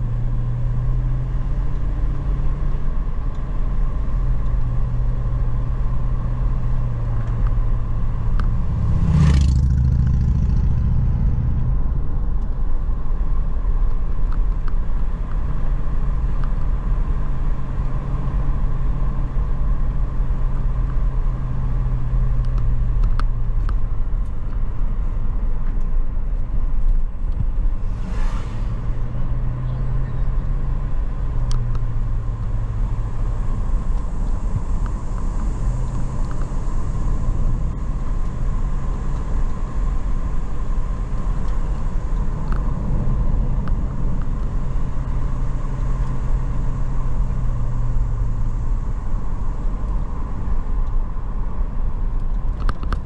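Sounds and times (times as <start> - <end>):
car engine and road noise: 0.0 - 53.0
loud whooshes: 8.5 - 12.0, 27.6 - 30.0.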